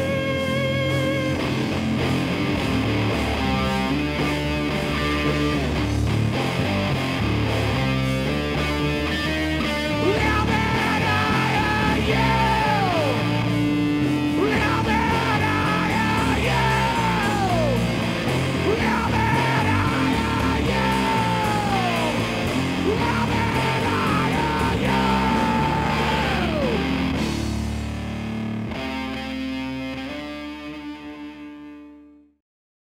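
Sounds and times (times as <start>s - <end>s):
hard rock band playing: 0.0s - 31.4s
singer yelling: 9.9s - 13.6s, 14.2s - 27.2s.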